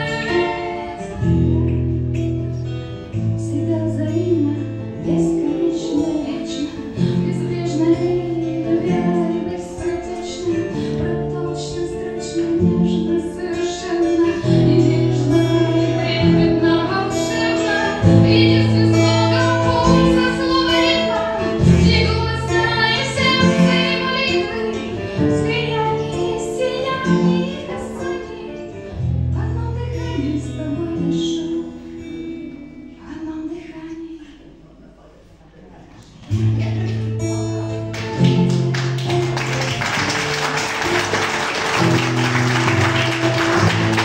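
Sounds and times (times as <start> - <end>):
woman singing: 0.0 - 1.8, 3.3 - 34.5
guitar chords: 0.0 - 33.0, 36.2 - 44.0.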